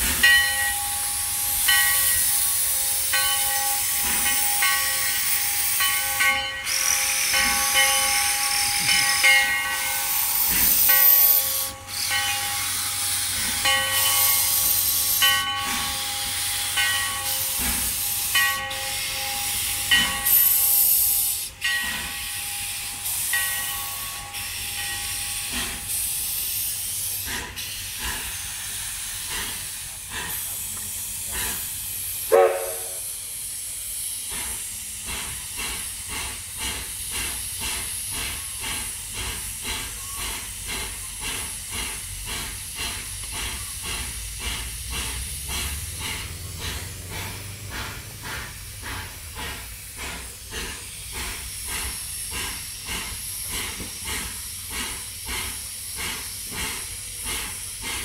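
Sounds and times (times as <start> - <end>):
steam locomotive hissing: 0.0 - 58.0
locomotive whistle blast: 32.3 - 33.1.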